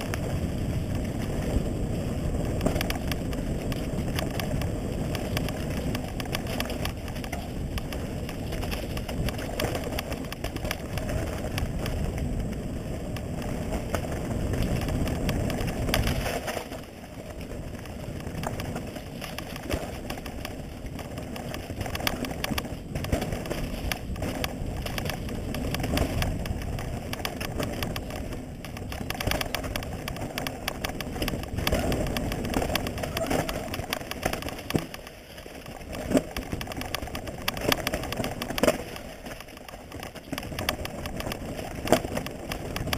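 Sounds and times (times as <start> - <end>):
tyre rumble: 0.0 - 42.9
wind rushing on microphone: 0.0 - 42.9
chain and frame clatter: 18.0 - 42.9.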